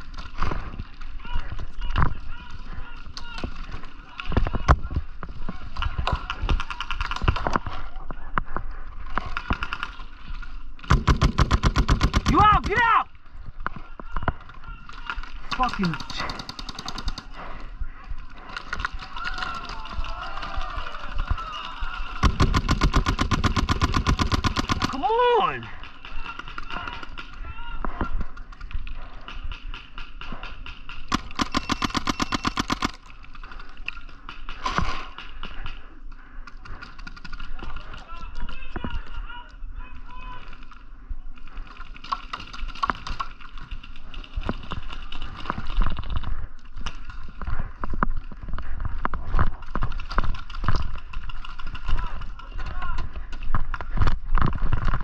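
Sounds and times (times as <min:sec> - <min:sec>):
paintball markers firing: 0:10.8 - 0:12.8, 0:15.6 - 0:17.5, 0:22.2 - 0:25.2, 0:28.0 - 0:33.1.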